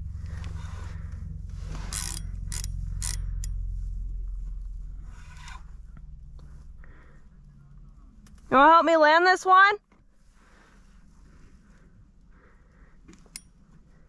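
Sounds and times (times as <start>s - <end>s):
fishing reel gears rumbling: 0.0s - 7.0s
sharp reel clicks: 1.9s - 3.6s.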